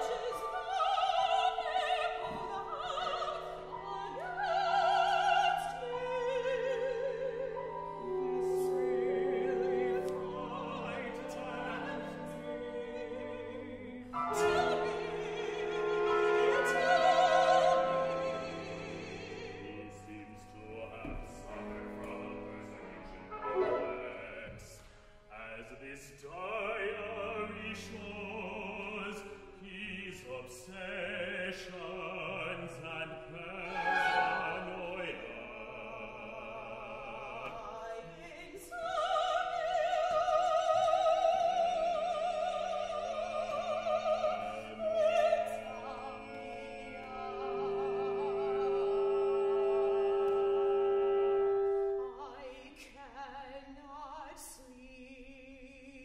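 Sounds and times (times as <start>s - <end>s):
opera singer with vibrato: 0.0s - 56.0s
small instrumental ensemble: 7.5s - 25.3s.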